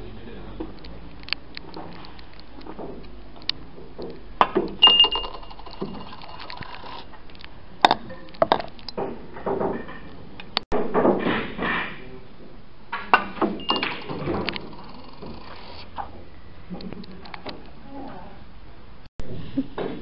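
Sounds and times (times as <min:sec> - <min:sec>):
coin clinking into glass: 0:04.8 - 0:07.0, 0:13.6 - 0:15.2.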